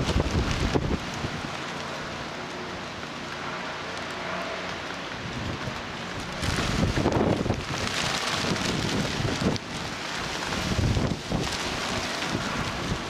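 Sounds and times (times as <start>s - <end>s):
gusty wind on microphone: 0.0s - 1.7s, 5.2s - 13.0s.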